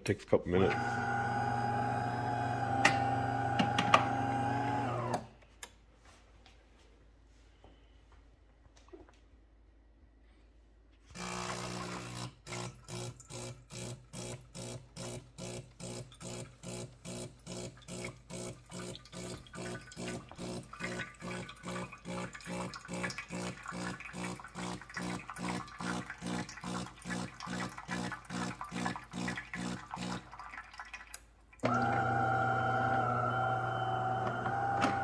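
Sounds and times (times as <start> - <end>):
espresso machine pump pulsing: 0.6 - 5.3, 11.2 - 30.3, 31.6 - 35.0
hot water spurting into jug: 15.0 - 35.0.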